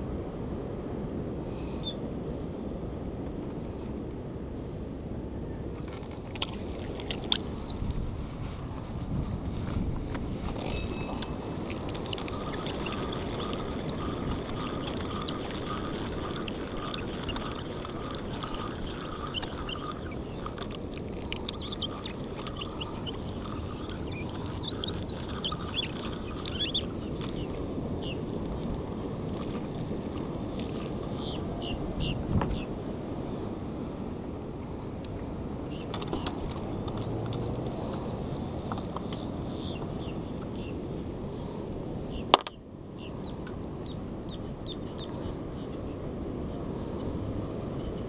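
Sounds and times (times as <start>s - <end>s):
wind on microphone: 5.0s - 33.7s
fishing reel ticking and squeaking: 5.9s - 8.0s, 10.5s - 31.4s.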